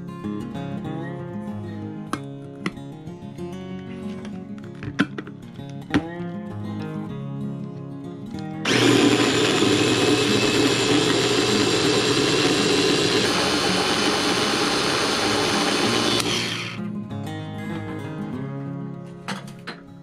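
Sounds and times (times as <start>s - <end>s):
food processor blending: 8.6s - 16.8s.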